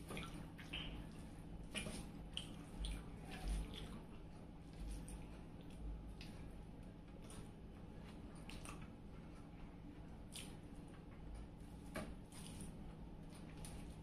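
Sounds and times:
wet chewing: 0.0s - 11.0s
lip smacks: 10.3s - 10.6s.

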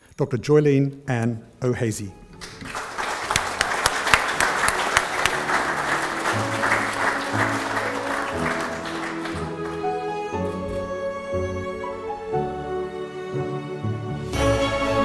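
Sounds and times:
instrumental background music: 1.0s - 15.0s
audience applauding: 2.4s - 10.7s.

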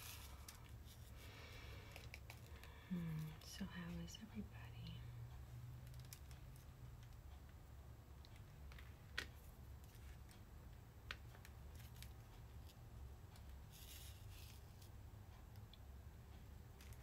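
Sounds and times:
low steady hum: 0.0s - 17.0s
soft rustle: 13.7s - 15.0s.

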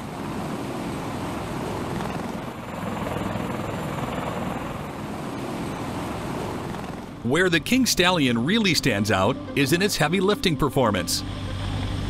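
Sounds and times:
helicopter rotor chop: 0.0s - 9.1s.

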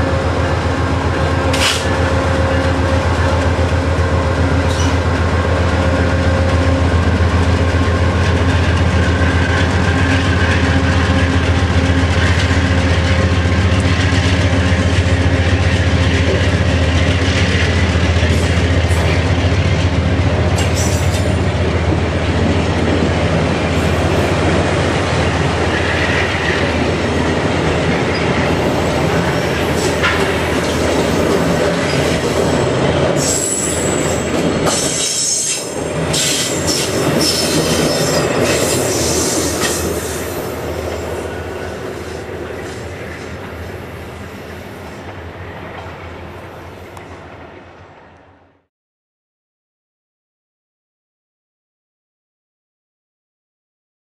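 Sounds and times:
passenger train rolling past: 0.0s - 48.7s.

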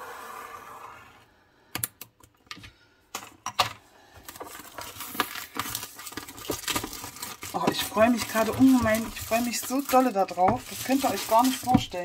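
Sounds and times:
plastic film crinkling: 4.2s - 12.0s
pointed tool scraping plastic film: 4.3s - 12.0s.

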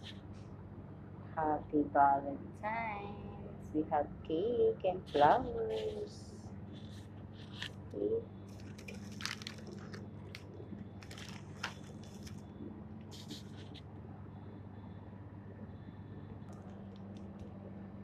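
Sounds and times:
steady low hum: 0.0s - 18.0s
plastic wrapping crinkling: 8.5s - 12.5s.

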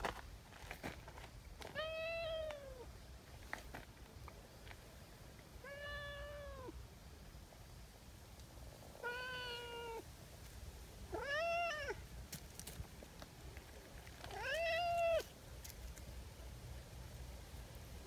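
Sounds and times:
cat meowing: 1.7s - 2.9s, 5.6s - 6.8s, 9.0s - 10.0s, 11.1s - 12.0s, 14.3s - 15.3s.

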